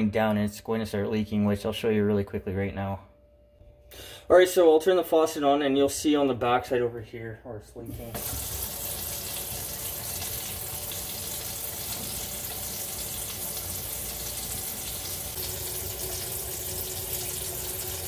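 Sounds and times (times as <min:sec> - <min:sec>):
water pouring into sink drain: 0:08.0 - 0:18.0.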